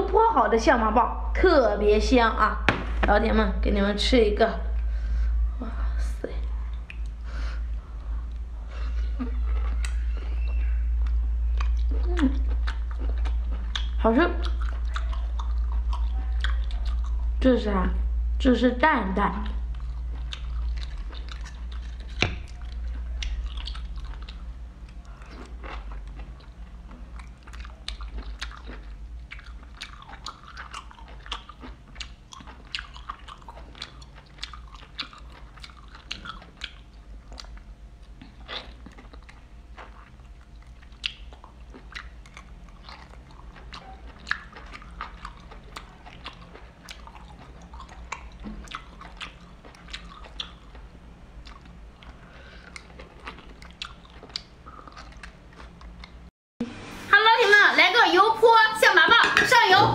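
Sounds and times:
low steady hum: 0.0 - 59.9
wet chewing and mouth smacks: 9.2 - 17.3, 19.4 - 56.3.

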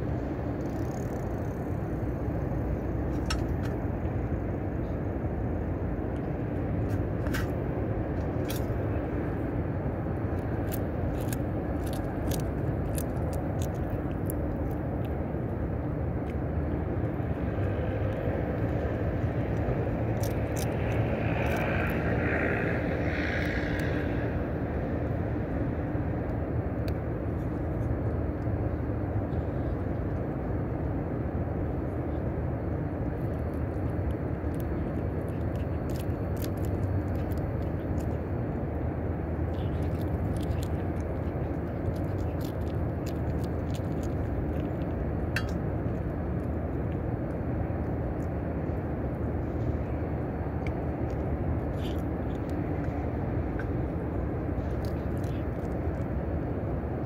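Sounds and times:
distant city traffic rumble: 0.0 - 57.0
cats chewing at metal tray: 6.8 - 24.1, 31.7 - 56.5.

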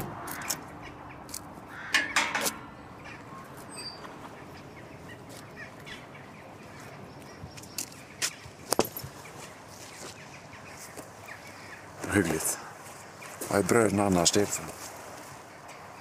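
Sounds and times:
crow cawing: 0.2 - 0.7, 1.6 - 3.4
small birds chirping: 0.2 - 16.0.

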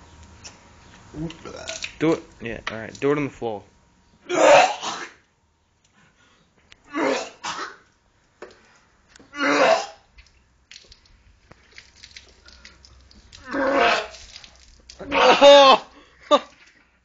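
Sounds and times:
man retching and coughing: 4.3 - 5.2, 6.9 - 7.8, 9.3 - 10.0, 15.0 - 16.5.

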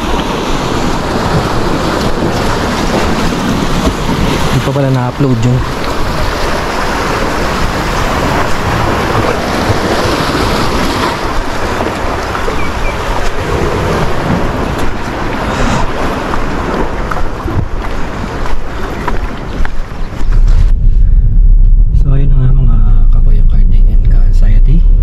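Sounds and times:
waves washing on rocky shore: 0.0 - 20.5
wind buffeting microphone: 0.0 - 25.0.

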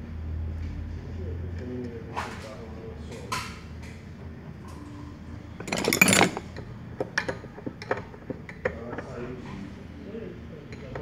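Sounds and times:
metal parts clattering: 5.6 - 6.6.

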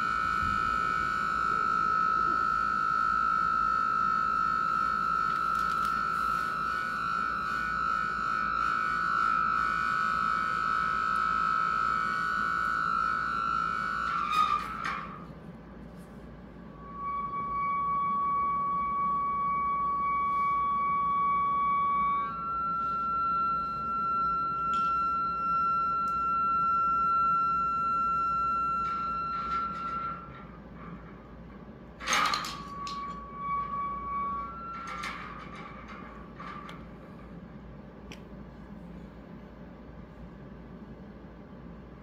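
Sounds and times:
sustained electronic tones: 0.0 - 15.3, 16.2 - 37.2.

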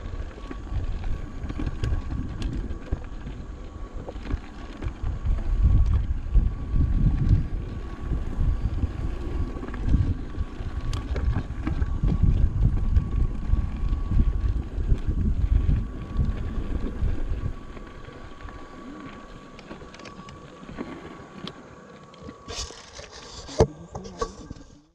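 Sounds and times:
wind buffeting microphone: 0.0 - 21.0
bike rumbling and rattling on dirt: 0.0 - 24.9
faint steady whine: 0.0 - 24.9.

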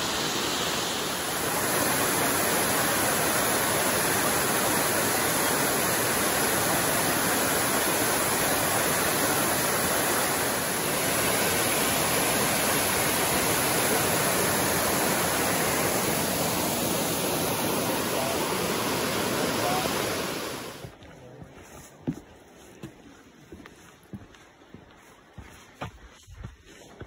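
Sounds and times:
waterfall rushing: 0.0 - 20.9.

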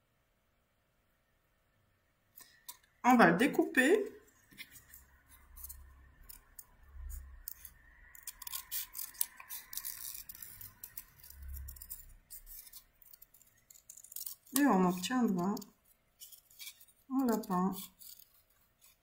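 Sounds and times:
scissors snipping paper: 4.6 - 19.0.

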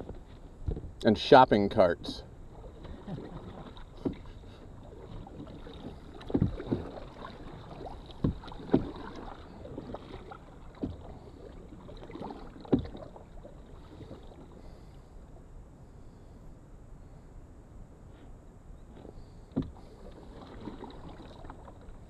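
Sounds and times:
water noise: 0.0 - 22.0
paddle knocks on canoe hull: 4.0 - 4.3, 6.1 - 7.3, 8.1 - 9.2, 10.7 - 11.2, 12.6 - 13.1, 19.0 - 19.9.

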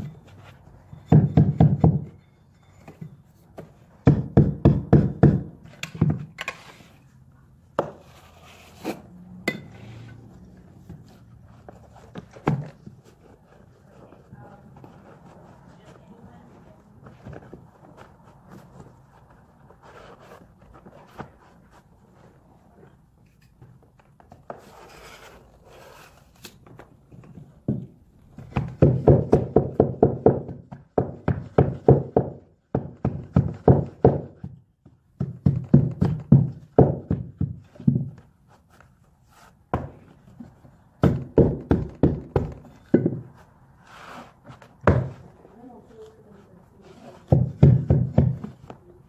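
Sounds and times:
hammer tapping carpet tile: 3.6 - 6.2, 27.7 - 38.3, 41.0 - 43.2, 47.3 - 48.8
faint rustling of tile: 5.6 - 28.6, 42.6 - 49.0.

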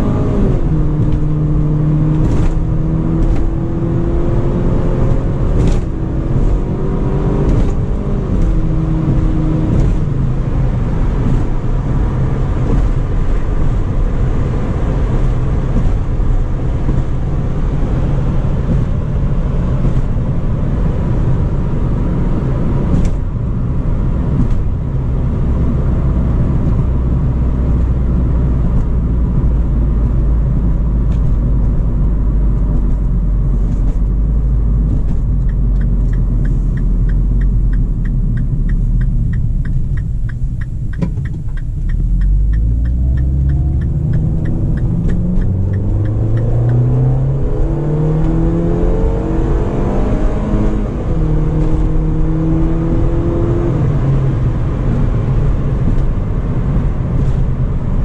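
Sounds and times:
car engine accelerating: 0.0 - 58.0
road and wind rumble: 0.0 - 58.0
turn signal ticking: 0.3 - 20.3, 28.6 - 48.7.

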